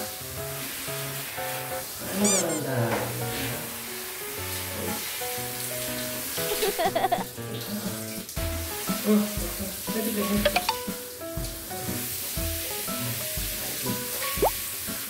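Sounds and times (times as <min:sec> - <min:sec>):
light background music: 0:00.1 - 0:15.0
water hissing from shower head: 0:03.4 - 0:15.0.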